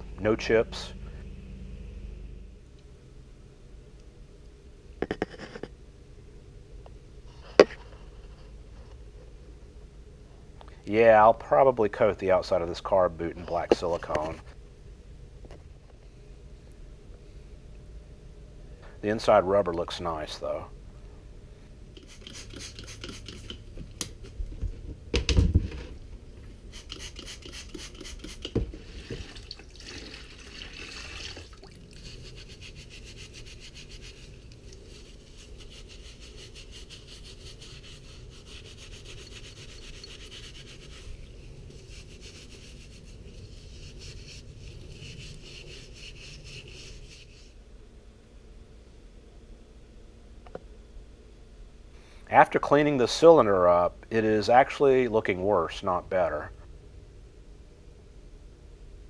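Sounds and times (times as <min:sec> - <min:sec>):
scratchy rubbing by hand: 0:05.1 - 0:05.7, 0:22.0 - 0:23.6, 0:31.9 - 0:47.6
spray bottle spritzing: 0:22.0 - 0:23.6, 0:26.7 - 0:28.5.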